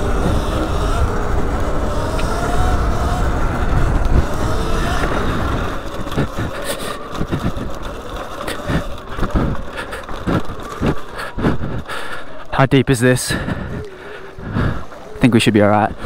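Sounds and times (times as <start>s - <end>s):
wind rush on camera: 0.0s - 11.9s
tyre rumble over dirt: 0.0s - 12.4s.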